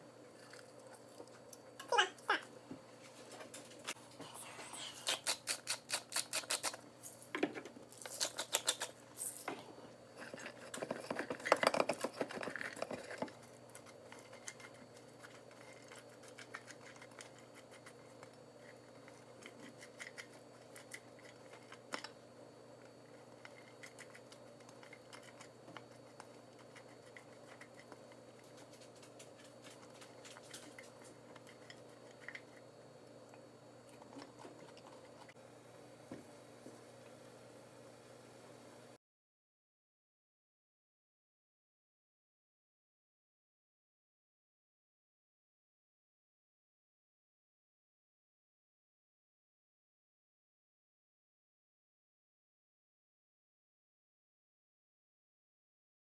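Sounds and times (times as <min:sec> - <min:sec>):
spice grinder cracking and clicking: 0:05.1 - 0:07.3, 0:07.9 - 0:09.5.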